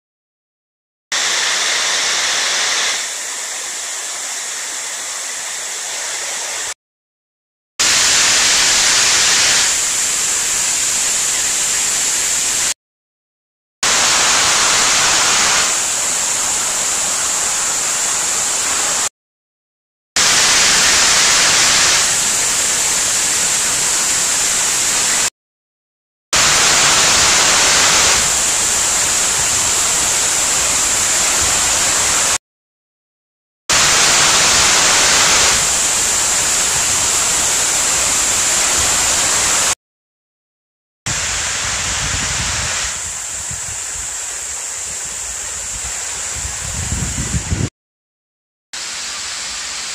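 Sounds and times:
waterfall pouring into pool: 0:01.2 - 0:06.8, 0:07.8 - 0:12.8, 0:13.8 - 0:19.1, 0:20.2 - 0:25.3, 0:26.4 - 0:32.4, 0:33.7 - 0:39.8, 0:48.8 - 0:49.9.

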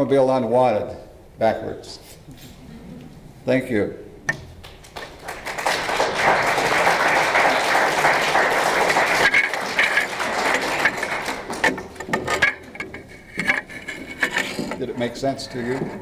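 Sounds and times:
audience applauding: 0:04.6 - 0:12.4.

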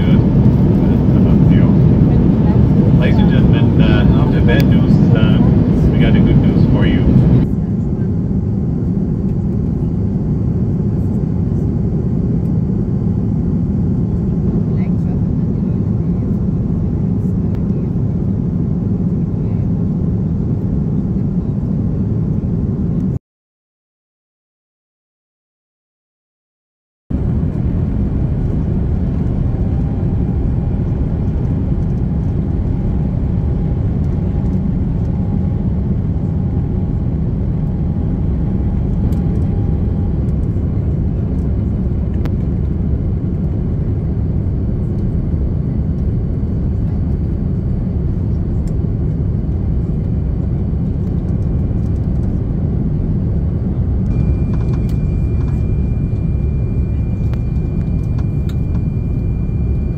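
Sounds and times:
airliner cabin rumble: 0:00.0 - 0:23.2, 0:27.1 - 0:59.9
faint thin whine: 0:54.0 - 0:59.9.

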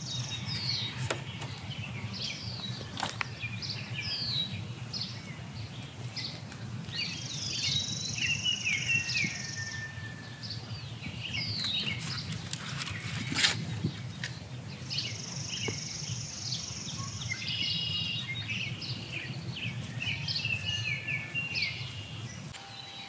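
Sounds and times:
low steady background rumble: 0:00.0 - 0:09.6
high level bird buzz: 0:00.0 - 0:23.0
songbirds calling: 0:00.0 - 0:23.0.

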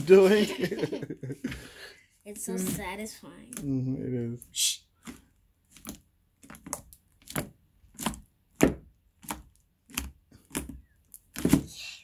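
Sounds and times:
hands squishing slime: 0:04.9 - 0:12.0.

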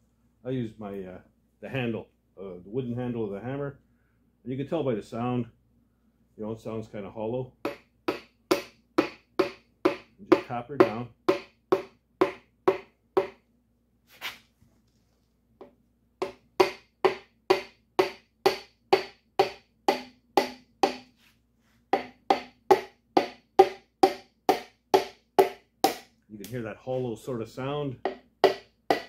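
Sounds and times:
hammer handle tapping piston: 0:07.6 - 0:13.4, 0:16.2 - 0:21.0, 0:22.0 - 0:26.1, 0:28.0 - 0:29.0.

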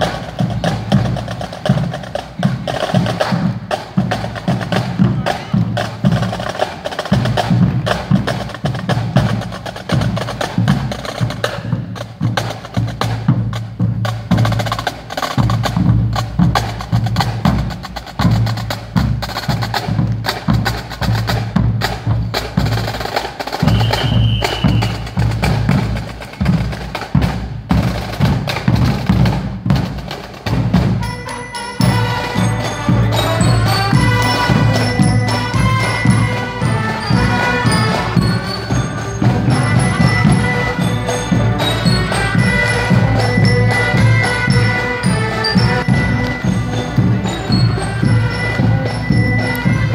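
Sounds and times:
pitched band music: 0:00.0 - 0:49.9
snare drum rolls: 0:00.0 - 0:49.9
high whistle-like tone: 0:23.6 - 0:25.2.

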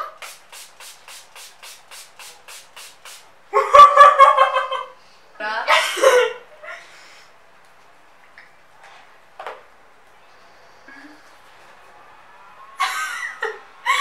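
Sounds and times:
spray bottle hissing: 0:00.0 - 0:03.3
people laughing: 0:12.8 - 0:14.0.

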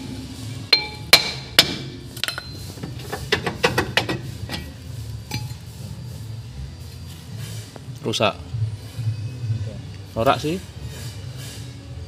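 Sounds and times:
metallic clinks and knocks: 0:02.2 - 0:04.7.

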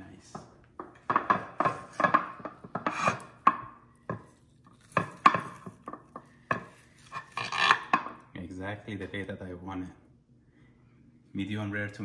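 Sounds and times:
knife and fork scraping a plate: 0:02.8 - 0:03.4.

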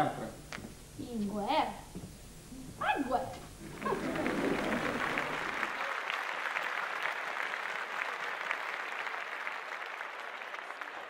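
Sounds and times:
audience clapping: 0:03.6 - 0:11.0.

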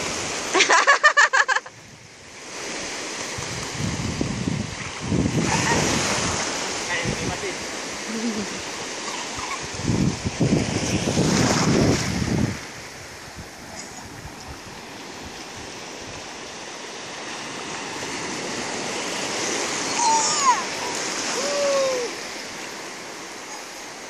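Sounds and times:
small waves washing: 0:00.0 - 0:24.0
wind on microphone: 0:01.7 - 0:16.8
high-pitched voice gliding: 0:19.9 - 0:22.1.

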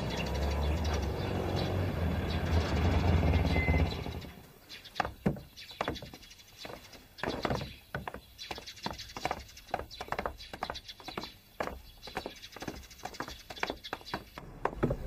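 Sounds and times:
footsteps on hard pavement: 0:04.7 - 0:15.0.

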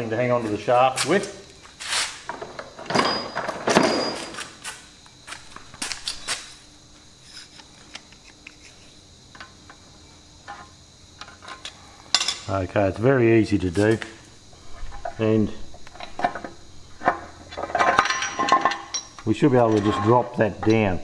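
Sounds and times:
rummaging and metal clatter: 0:02.3 - 0:06.6, 0:15.9 - 0:21.0.

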